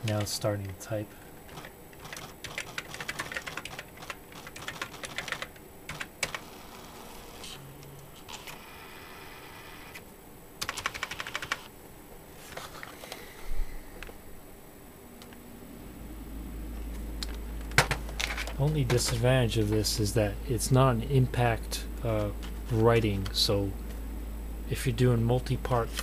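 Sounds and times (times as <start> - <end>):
fast typing on typewriter keyboard: 1.5 - 6.5, 10.6 - 11.7
rapid ticking of print mechanism: 1.5 - 7.5, 10.6 - 11.7.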